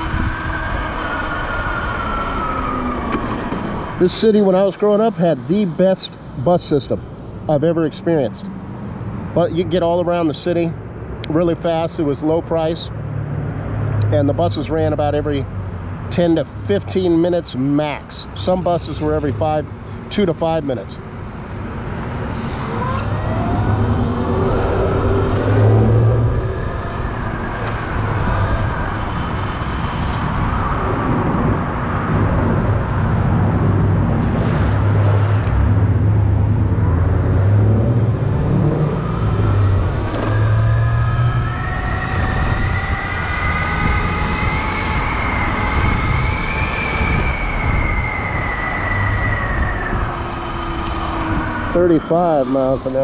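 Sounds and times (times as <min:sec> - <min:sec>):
wind on microphone: 0:00.0 - 0:04.1, 0:22.0 - 0:51.8.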